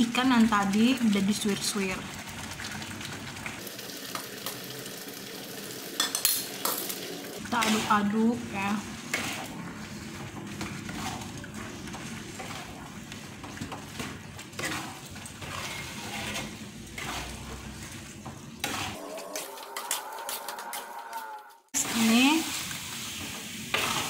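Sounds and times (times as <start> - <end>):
oil sizzling: 0.0 - 24.0
spatula scraping pan: 7.4 - 22.2, 23.1 - 24.0.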